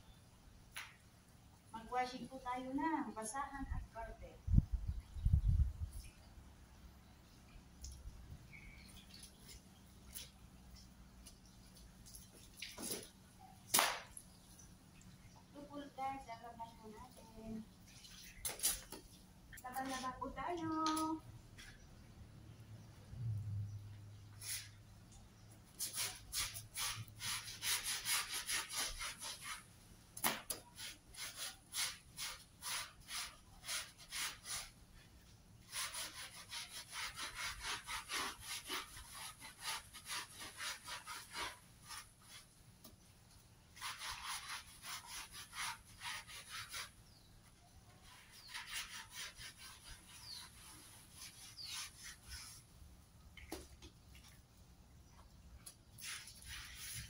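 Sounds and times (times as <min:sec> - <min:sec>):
scrub brush rasping on wet mat: 0:25.7 - 0:29.7, 0:30.3 - 0:34.8, 0:35.6 - 0:42.6, 0:43.7 - 0:47.0, 0:48.0 - 0:52.7, 0:56.0 - 0:57.0.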